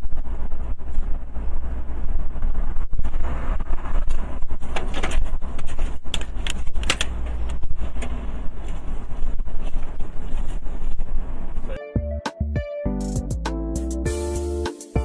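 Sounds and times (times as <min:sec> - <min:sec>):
car road and wind rumble: 0:00.0 - 0:11.8.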